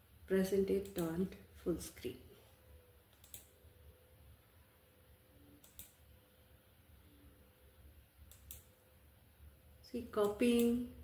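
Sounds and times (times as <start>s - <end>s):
faint computer clicks: 0.8s - 1.2s, 3.1s - 3.6s, 5.6s - 6.1s, 8.2s - 8.8s.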